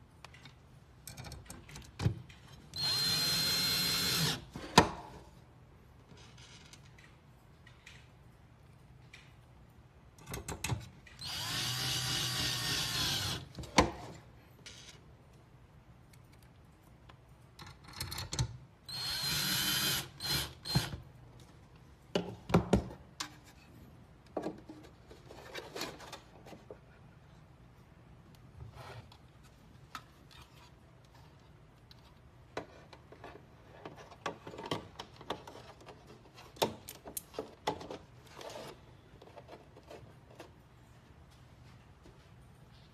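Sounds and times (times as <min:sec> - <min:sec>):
cordless drill driving screws: 0:02.8 - 0:04.5, 0:11.2 - 0:13.5, 0:18.9 - 0:20.9.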